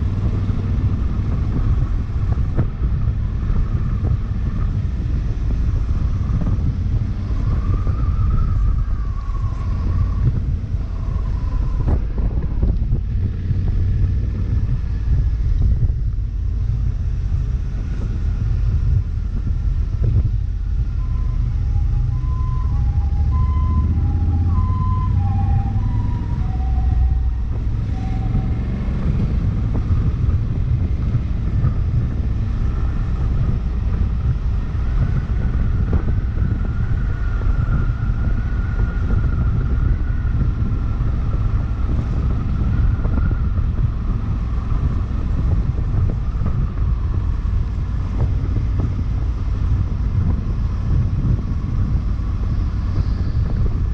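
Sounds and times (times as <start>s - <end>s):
motorcycle engine rumble: 0.0s - 53.9s
wind: 0.0s - 53.9s
two-tone emergency siren: 7.2s - 12.4s, 20.7s - 30.1s, 34.9s - 43.9s.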